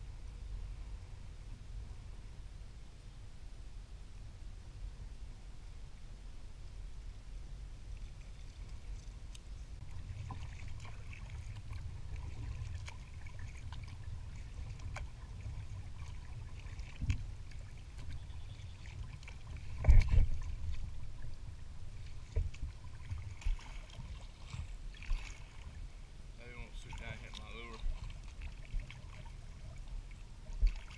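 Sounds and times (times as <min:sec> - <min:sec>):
low steady rumble: 0:00.0 - 0:30.9
water trickling: 0:07.7 - 0:30.9
paddle blades splashing: 0:07.9 - 0:30.9.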